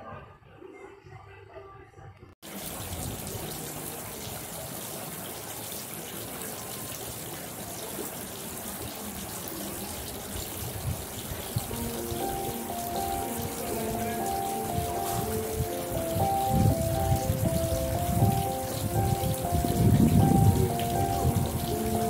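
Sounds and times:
fountain water splashing: 2.4 - 22.0.

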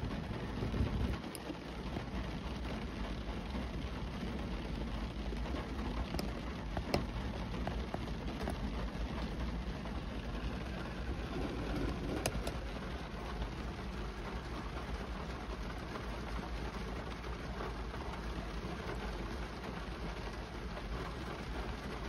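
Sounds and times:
low rumble: 0.0 - 1.2, 4.2 - 14.3
rain on a car: 0.0 - 22.0
raindrop taps: 0.0 - 22.0.

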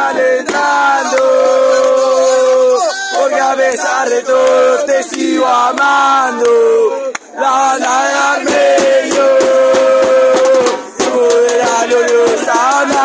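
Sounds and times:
football supporters chanting: 0.0 - 13.0
bass drums beating: 8.1 - 13.0.

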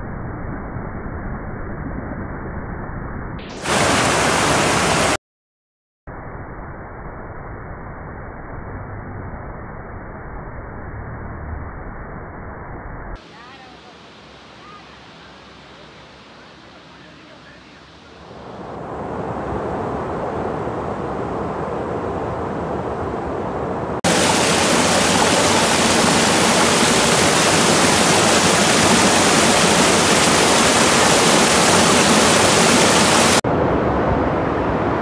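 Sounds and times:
stream rushing: 3.6 - 5.2, 24.0 - 33.4
water pouring over rock: 24.1 - 33.4.

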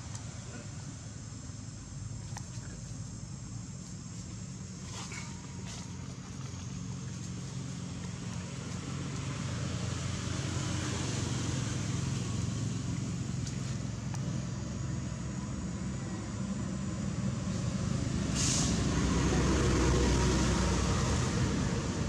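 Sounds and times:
vehicle engine rumble: 0.0 - 22.0
brief hiss: 18.3 - 18.8.

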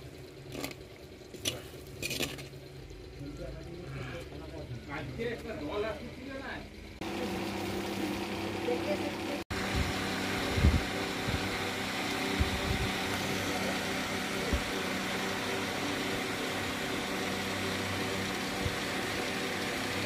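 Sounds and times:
mechanical hum: 0.0 - 20.0.

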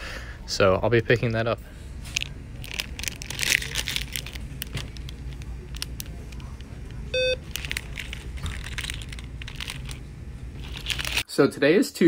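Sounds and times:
plastic bag crinkling: 2.0 - 11.2
scanner beep: 7.1 - 7.4.

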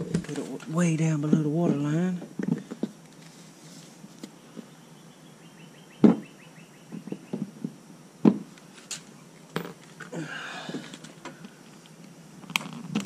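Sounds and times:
sharp knocks and taps on plastic: 6.9 - 8.5.

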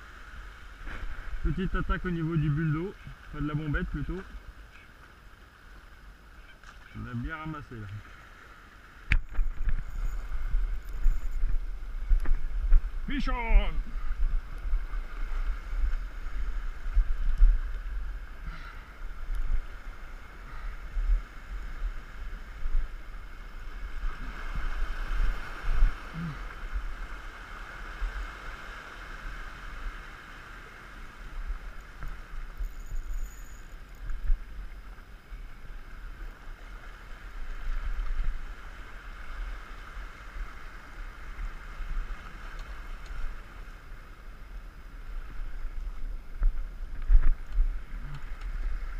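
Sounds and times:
wind buffeting microphone: 9.0 - 28.4.

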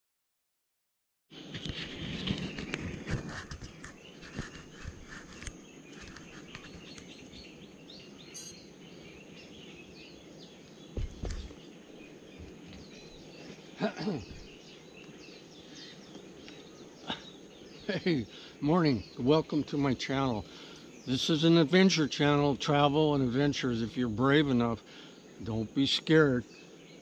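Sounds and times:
rustle and bump near microphone: 1.4 - 7.5, 10.9 - 11.7
birds chirping: 1.4 - 27.0
thin steady high tone: 8.2 - 9.1
low thump: 11.0 - 11.5.

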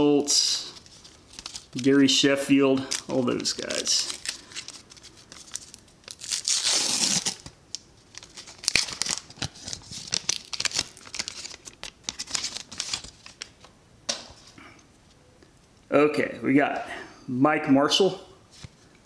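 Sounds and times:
foil wrapper crinkling: 0.8 - 1.9, 2.8 - 13.6
foil pack ripping: 3.0 - 7.5.

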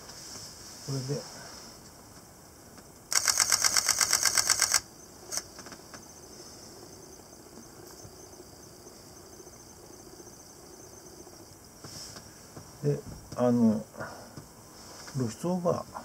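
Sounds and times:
camera shutter clicks: 3.1 - 5.5.

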